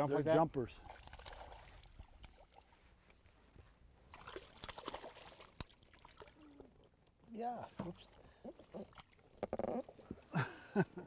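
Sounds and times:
fish splashing at surface: 4.1 - 6.4.

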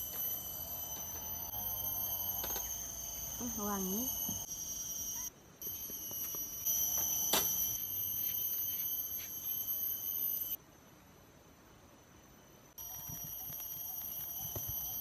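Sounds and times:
forest insects droning: 0.0 - 15.0.

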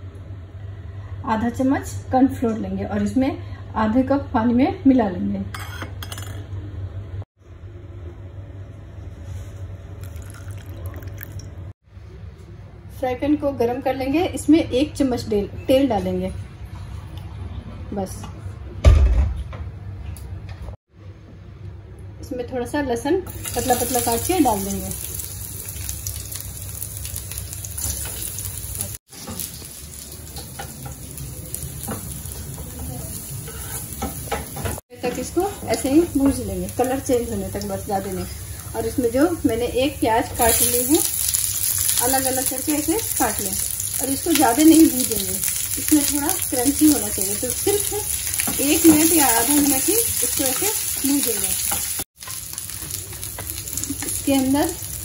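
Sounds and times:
water trickling into a mug: 10.0 - 11.6
garlic sizzling in oil: 23.3 - 55.0.

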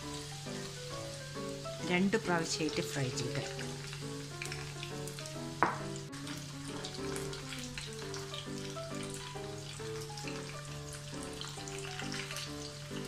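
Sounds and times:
background music: 0.0 - 13.0
corn sizzling in hot oil: 0.0 - 13.0
spoon knocking against pan: 5.6 - 6.0.

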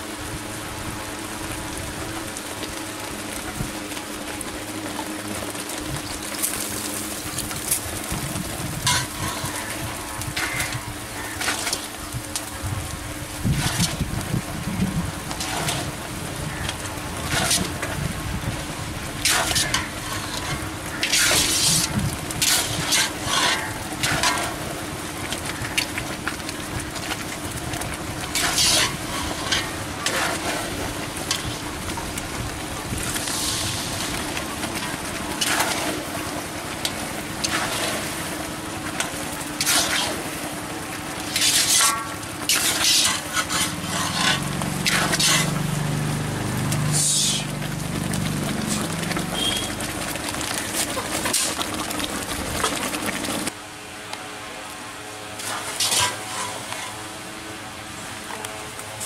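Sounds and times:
syrup sizzling: 6.0 - 53.6
metal utensils scraping a pan: 8.8 - 9.7, 15.4 - 15.9, 17.3 - 17.8, 19.2 - 24.6, 28.4 - 30.7, 39.6 - 40.2, 41.3 - 45.6, 55.4 - 57.0.

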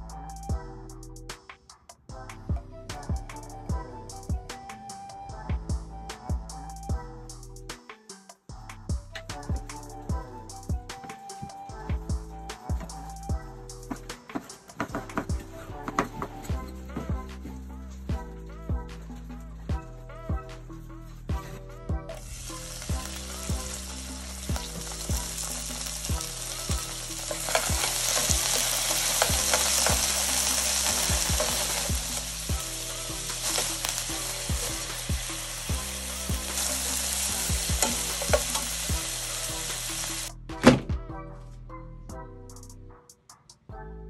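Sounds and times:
beef sizzling in hot oil: 22.2 - 40.3.

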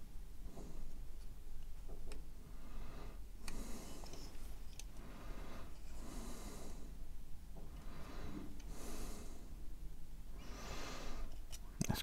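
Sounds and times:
breathing through the nose: 5.0 - 7.0, 7.7 - 9.6, 10.4 - 11.4.

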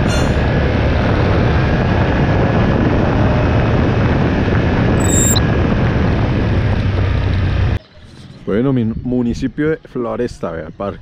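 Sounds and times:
wind rushing over microphone: 0.0 - 7.8
low motorcycle engine hum: 0.0 - 11.0
brief high-pitched chirp: 5.0 - 5.4.

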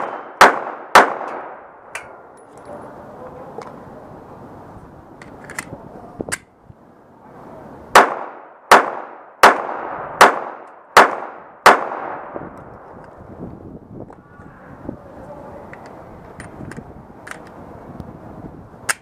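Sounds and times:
pistol shots: 0.0 - 2.1, 7.9 - 12.4.

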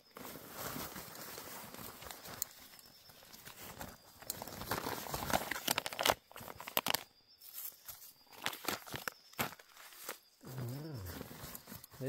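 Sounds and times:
food pouch crinkling and tearing: 4.2 - 7.1, 8.3 - 12.0.

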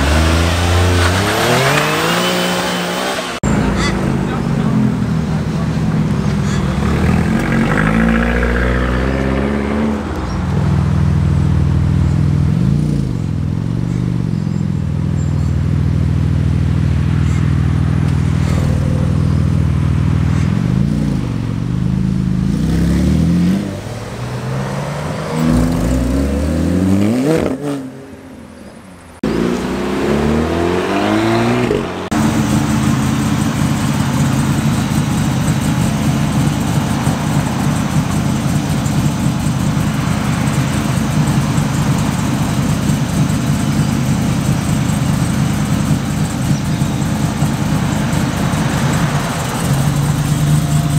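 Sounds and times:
car engine idling: 0.0 - 8.8, 10.0 - 22.6, 31.9 - 50.9
car engines revving: 0.0 - 50.9.

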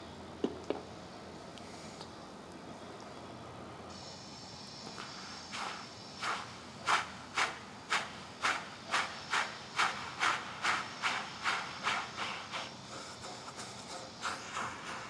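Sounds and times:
steam locomotive chuffing: 3.9 - 15.0.

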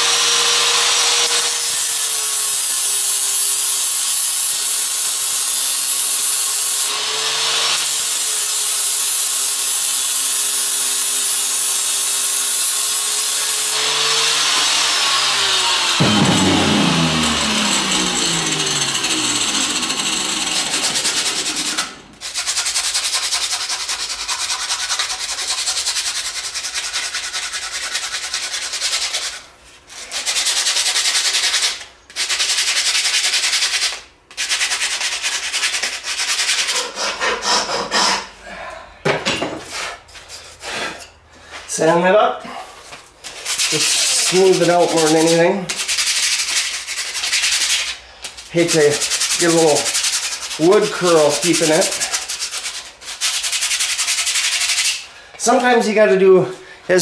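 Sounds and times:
power tool grinding wood: 0.0 - 3.6, 4.6 - 22.3, 43.6 - 45.5, 48.5 - 52.4
power tool winding down: 0.0 - 22.2
hand sanding wood: 12.7 - 38.3, 42.9 - 57.0.

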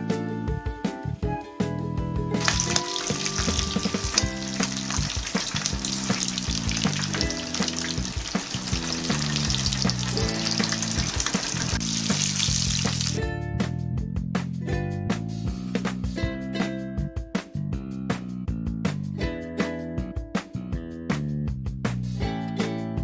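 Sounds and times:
background music: 0.0 - 17.6
oil sizzling and bubbling: 2.4 - 13.2.

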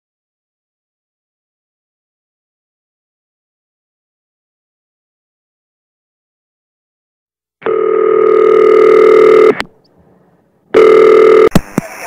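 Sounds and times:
electronic telephone ringing: 7.6 - 9.6, 10.7 - 11.5.

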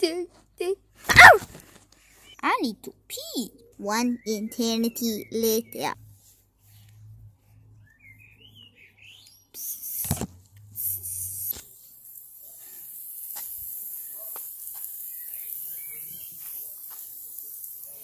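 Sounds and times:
hose nozzle spraying water: 10.8 - 18.0.

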